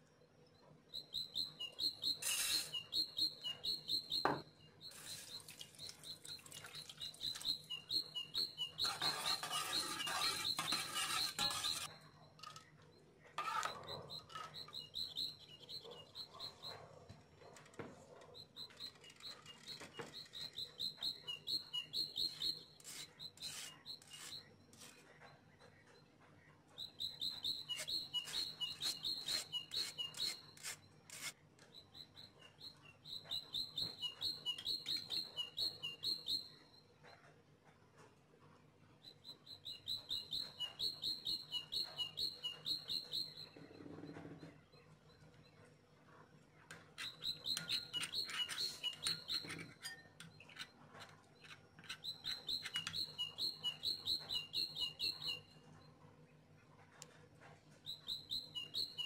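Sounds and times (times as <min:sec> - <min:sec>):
bird chirping: 0:00.0 - 0:37.3, 0:38.8 - 0:59.0.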